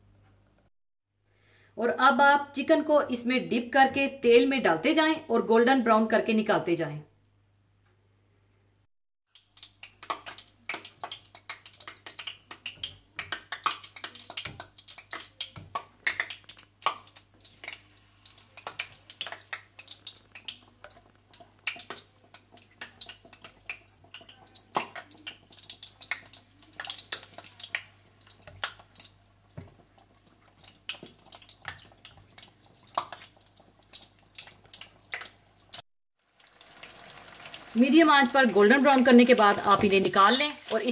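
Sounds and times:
chicken deep-frying in oil: 0:09.3 - 0:40.9.

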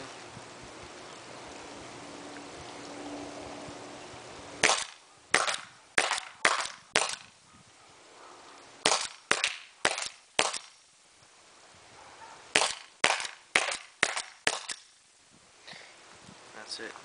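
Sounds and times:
paintball marker pops: 0:04.6 - 0:07.3.

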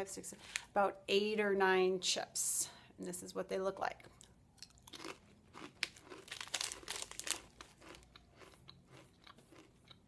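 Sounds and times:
crisp chip crunching: 0:04.2 - 0:10.0.

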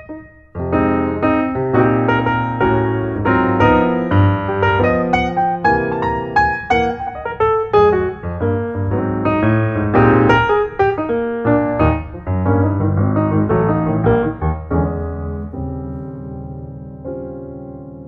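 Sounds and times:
piano music: 0:00.0 - 0:18.0.

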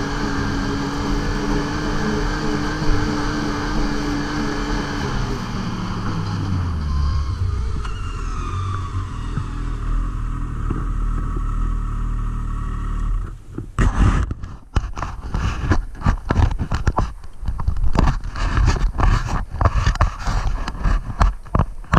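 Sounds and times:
snowmobile engine running: 0:00.0 - 0:15.8
gloved hand rubbing and knocking: 0:13.6 - 0:21.9.

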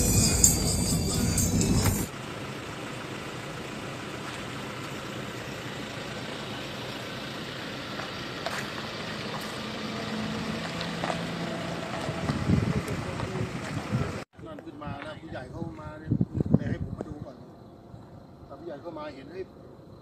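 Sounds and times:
background music: 0:00.0 - 0:02.1
tram engine hum: 0:00.0 - 0:14.2
outdoor vehicle background: 0:00.0 - 0:20.0.

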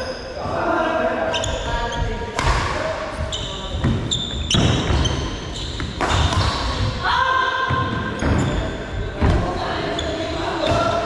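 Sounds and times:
racket hitting shuttlecock: 0:02.4 - 0:02.8, 0:05.8 - 0:06.9.

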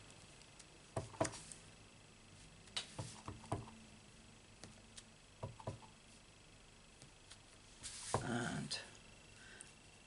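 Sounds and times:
stamp block tapping: 0:05.4 - 0:05.8.

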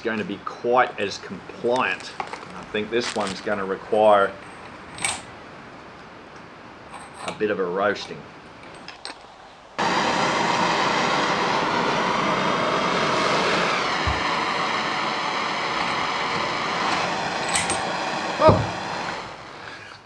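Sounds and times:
blowtorch hissing: 0:01.6 - 0:03.6, 0:09.8 - 0:20.0.

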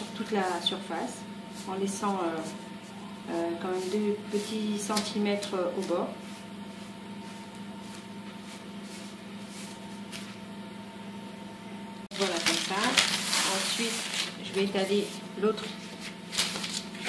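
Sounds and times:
rustling and handling noise: 0:12.1 - 0:17.0.

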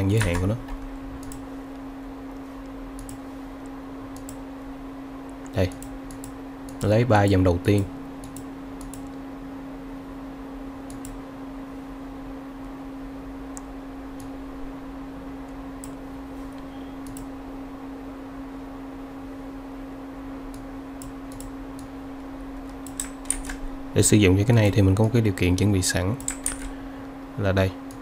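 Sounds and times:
low electrical hum with hiss: 0:00.0 - 0:28.0
faint computer clicks: 0:08.2 - 0:09.2, 0:22.7 - 0:23.6, 0:26.2 - 0:26.8.

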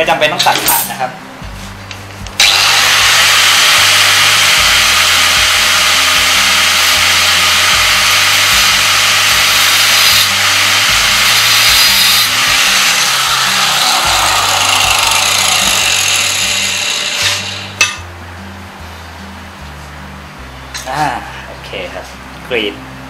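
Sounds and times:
angle grinder cutting steel: 0:02.4 - 0:18.0.

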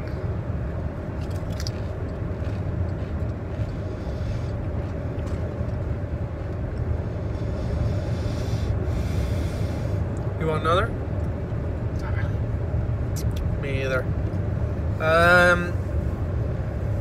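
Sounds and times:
car cabin road rumble: 0:00.0 - 0:17.0
potato chip crunching: 0:01.2 - 0:03.7.

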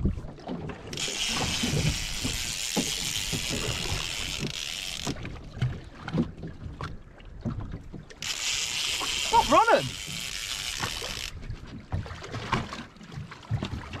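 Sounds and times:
fishing reel drag buzzing: 0:00.9 - 0:05.4, 0:08.1 - 0:11.4
knocks and thumps from boat: 0:05.0 - 0:08.2, 0:11.5 - 0:14.0.

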